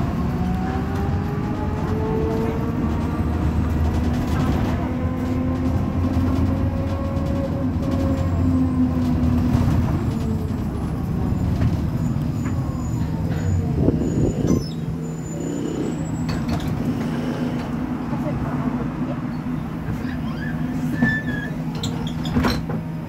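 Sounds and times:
bus engine humming: 0:00.0 - 0:23.0.

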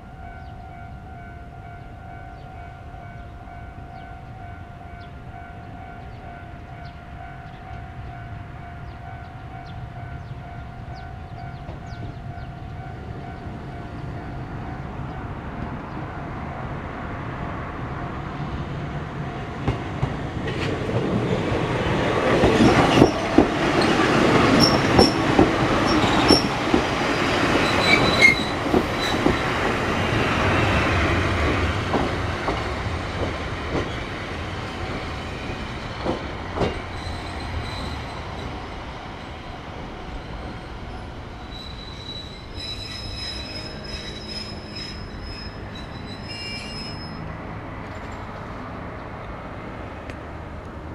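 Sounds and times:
electric train passing: 0:00.0 - 0:50.9
high wheel squeals: 0:22.6 - 0:29.6, 0:36.7 - 0:38.6, 0:40.1 - 0:48.1.

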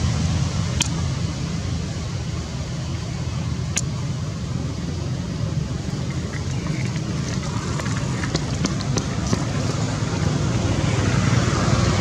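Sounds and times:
sharp click: 0:00.8 - 0:01.0, 0:03.7 - 0:03.9.

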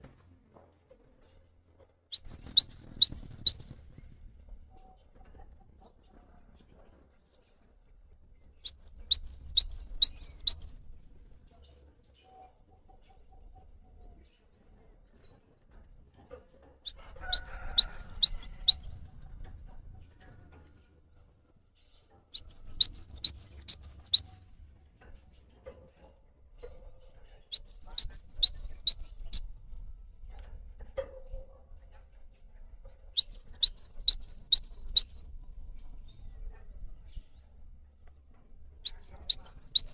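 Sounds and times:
bird singing high repeated notes: 0:02.2 - 0:03.8, 0:08.7 - 0:10.8, 0:16.9 - 0:19.0, 0:22.4 - 0:24.4, 0:27.6 - 0:29.5, 0:33.2 - 0:35.2, 0:38.9 - 0:39.9.

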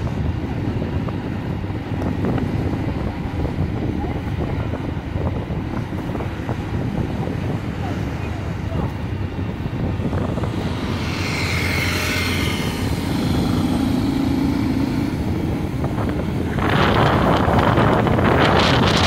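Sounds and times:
wind rushing past: 0:00.0 - 0:19.0
motorcycle engine running: 0:05.8 - 0:19.0.

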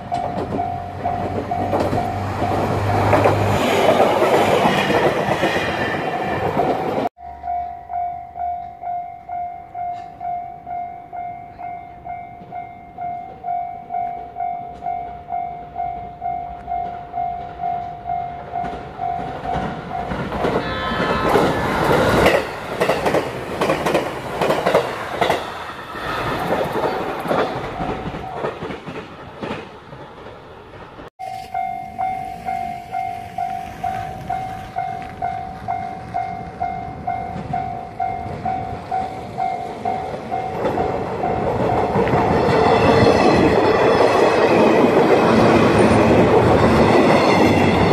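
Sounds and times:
level crossing warning bell ringing: 0:00.0 - 0:03.0, 0:07.1 - 0:20.7, 0:31.2 - 0:44.3
train wheels clattering on rail: 0:00.0 - 0:07.1, 0:15.9 - 0:47.9
electric train passing: 0:00.0 - 0:47.9.

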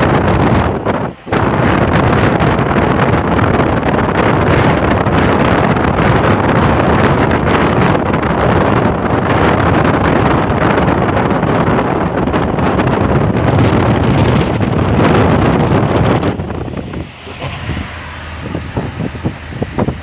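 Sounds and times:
car road noise: 0:00.0 - 0:20.0
wind buffeting microphone: 0:00.0 - 0:20.0.

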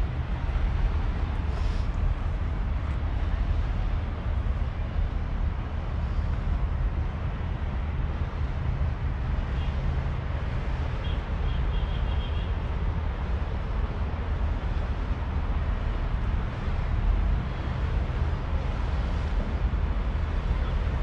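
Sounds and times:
constant noisy wash: 0:00.0 - 0:21.0
low rumble of motor traffic: 0:00.0 - 0:21.0.

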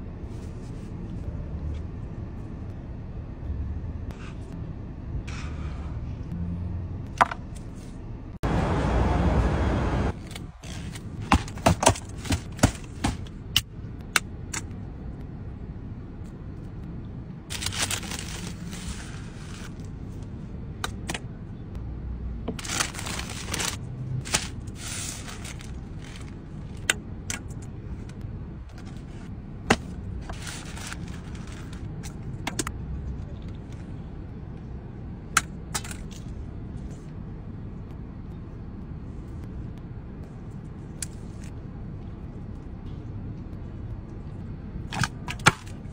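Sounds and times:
paper wrapping rustling: 0:17.5 - 0:19.7, 0:22.6 - 0:26.4, 0:30.3 - 0:31.9.

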